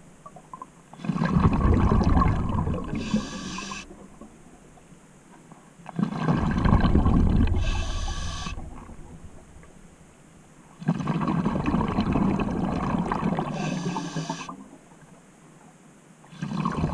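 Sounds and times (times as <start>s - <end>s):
diver breathing through regulator: 2.9s - 4.0s, 7.5s - 8.8s, 13.5s - 14.6s.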